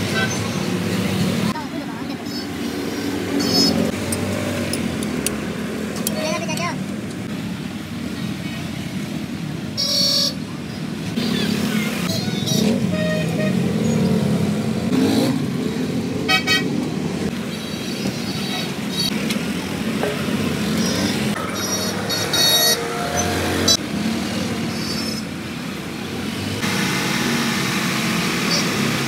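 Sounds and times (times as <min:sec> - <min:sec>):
traffic engine hum: 0:00.0 - 0:29.0
vehicle horns honking: 0:09.8 - 0:10.4, 0:12.2 - 0:13.7, 0:16.3 - 0:16.7, 0:21.4 - 0:23.8.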